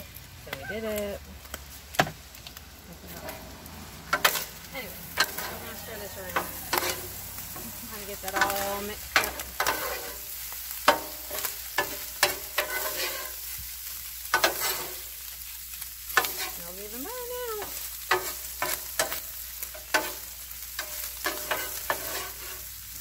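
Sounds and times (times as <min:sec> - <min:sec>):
meat sizzling: 0:00.0 - 0:23.0
metal spatulas scraping a griddle: 0:04.1 - 0:13.6, 0:14.3 - 0:15.2, 0:16.1 - 0:16.7, 0:17.6 - 0:22.8.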